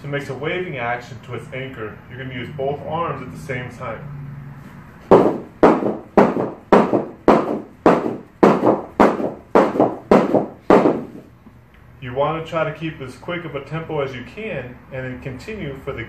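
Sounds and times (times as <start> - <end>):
battle rope slapping the floor: 5.1 - 11.3.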